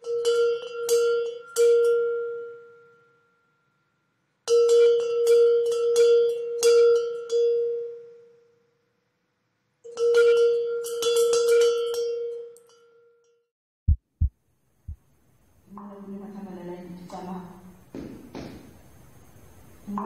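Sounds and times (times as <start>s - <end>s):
short low thuds: 13.9s - 14.3s.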